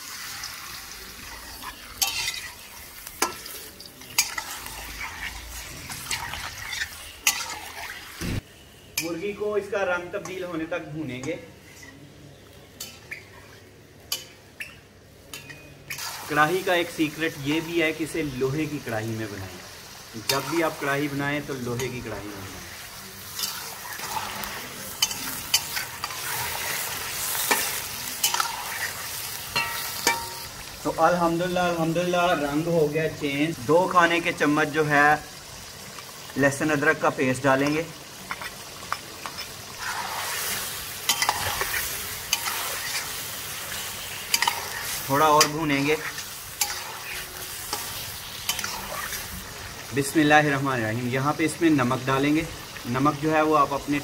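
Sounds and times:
chicken frying in oil: 0.0s - 9.7s, 15.9s - 54.0s
metal spatula scraping a pan: 1.3s - 8.2s, 23.2s - 30.7s, 37.6s - 49.5s
metal spatula knocking pan: 29.5s - 30.5s.

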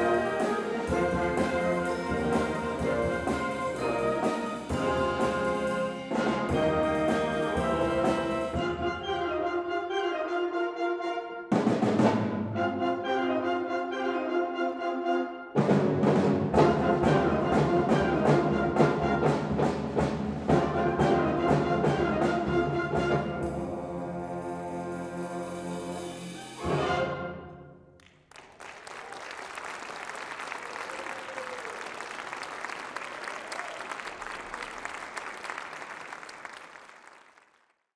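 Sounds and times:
wind band playing: 0.0s - 27.8s
audience applause: 28.0s - 37.9s.

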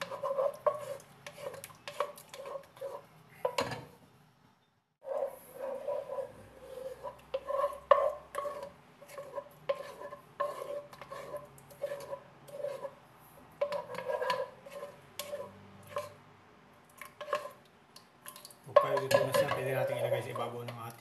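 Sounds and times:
wooden spoon scraping pot: 0.0s - 3.9s, 5.0s - 13.0s, 13.6s - 16.2s, 17.0s - 17.6s, 18.3s - 21.0s
spoon knocking pot: 18.7s - 20.8s.

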